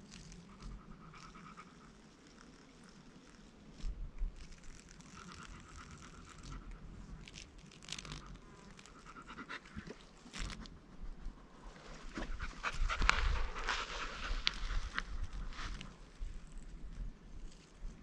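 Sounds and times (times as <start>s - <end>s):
dog panting: 12.2s - 14.4s.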